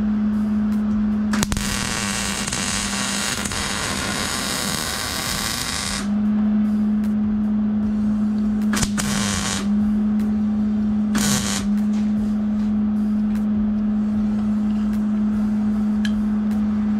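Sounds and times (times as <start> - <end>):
low hum: 0.0 - 16.9
welding arc crackling hiss: 1.4 - 6.1, 8.7 - 9.7, 11.2 - 11.8.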